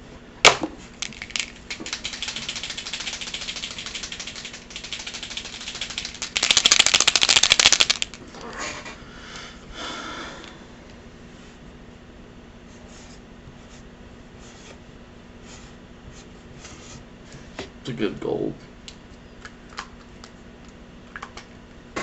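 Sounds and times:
marker ball rattling: 1.0 - 8.2.

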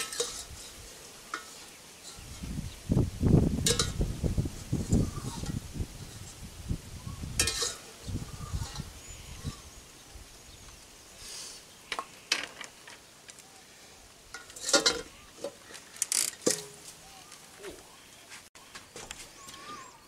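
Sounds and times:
utensils scraping a frying pan: 0.0 - 2.6, 4.6 - 6.4, 7.4 - 9.8, 14.3 - 16.9.

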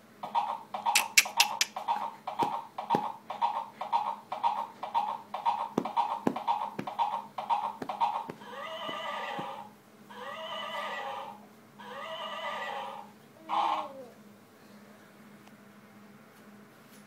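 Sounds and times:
electronic galloping hoofbeats: 0.9 - 9.6
rocking horse knocking on wooden base: 1.8 - 9.6
recorded horse neighs: 8.4 - 13.9.

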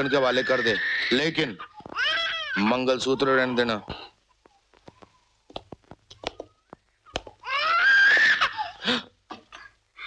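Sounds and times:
small child crying: 0.0 - 3.6, 7.4 - 8.8.

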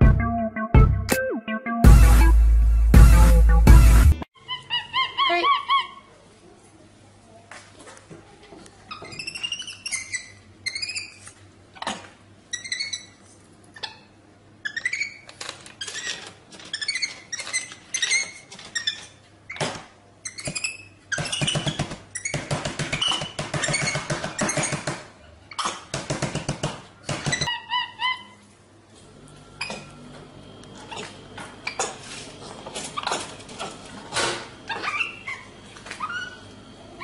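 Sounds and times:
monkey squeaking and chirping: 4.4 - 6.0, 8.9 - 11.2, 11.8 - 19.6, 20.2 - 24.8, 27.3 - 28.4, 34.7 - 36.5
rapid pulsing monkey call: 34.6 - 37.0.

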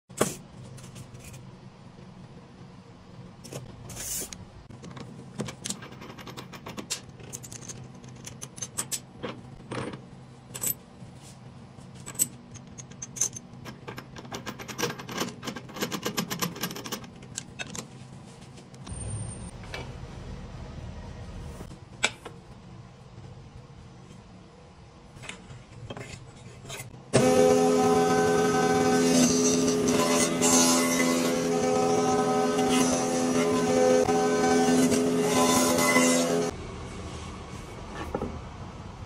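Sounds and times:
steady low hum: 17.8 - 27.2.

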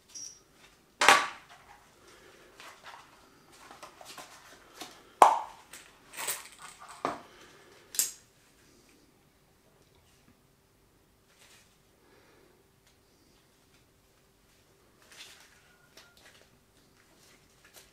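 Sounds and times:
soft handling noise: 12.8 - 17.9.

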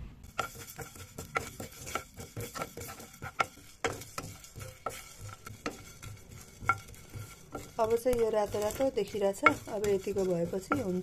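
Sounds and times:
wooden spatula scraping seeds in pan: 0.2 - 11.0.

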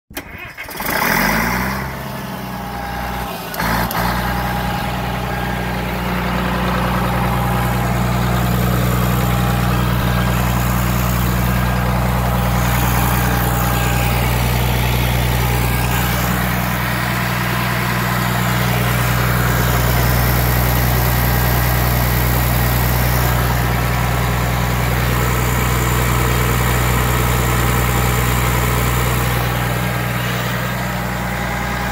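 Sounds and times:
diesel engine running: 0.2 - 31.9.

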